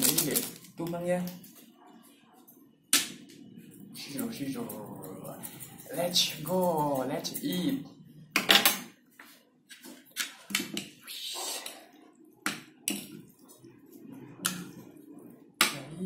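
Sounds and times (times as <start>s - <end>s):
utensils clicking and scraping: 4.2s - 7.8s.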